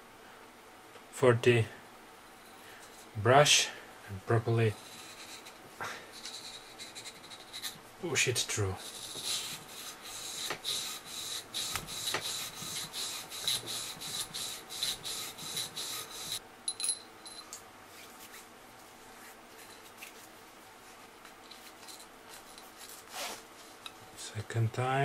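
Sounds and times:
faint rubbing and handling: 4.6s - 7.9s, 8.6s - 16.4s, 17.8s - 23.9s.

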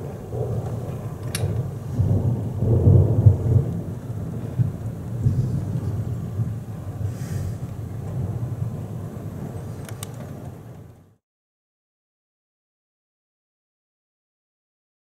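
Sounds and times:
thunder rumbling: 0.0s - 11.2s.

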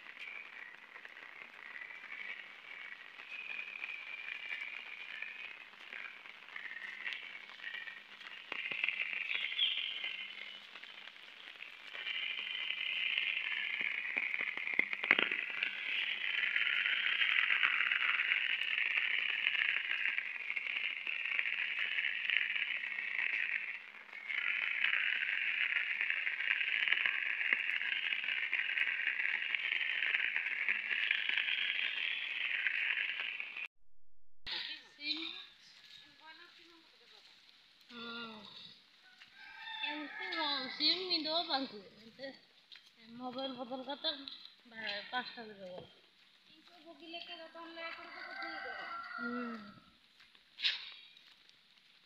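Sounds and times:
insects buzzing: 0.1s - 33.7s.

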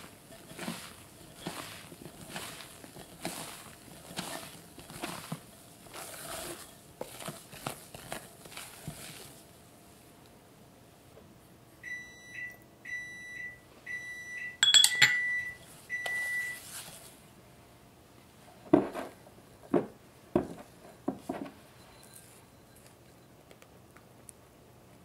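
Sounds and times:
appliance electronic beeps: 11.8s - 16.6s.

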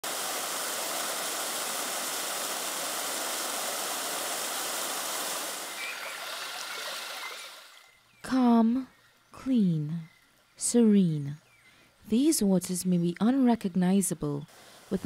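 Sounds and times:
stream water rushing: 0.0s - 8.0s
faint chirps: 5.7s - 10.7s.

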